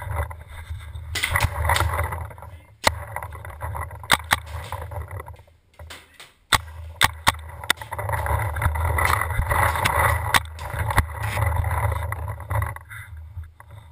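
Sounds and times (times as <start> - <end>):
handling rumble: 0.0 - 13.9
paintball markers firing: 1.2 - 2.2, 4.0 - 5.0, 5.8 - 11.4.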